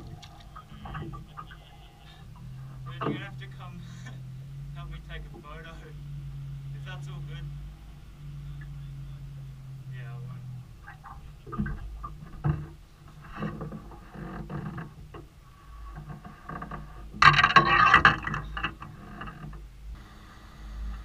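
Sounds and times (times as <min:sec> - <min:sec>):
gear clattering against boat hull: 0:00.0 - 0:05.8, 0:10.1 - 0:19.8
low steady hum: 0:00.0 - 0:21.0.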